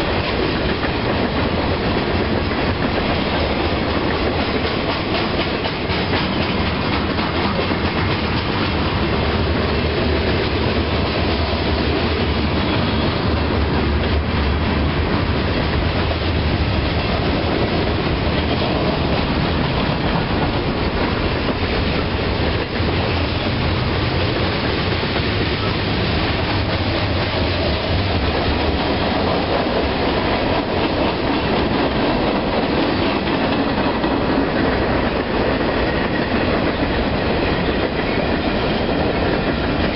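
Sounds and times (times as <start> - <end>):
freight train rumbling past: 0.0 - 39.9
train wheel clatter: 0.0 - 39.9.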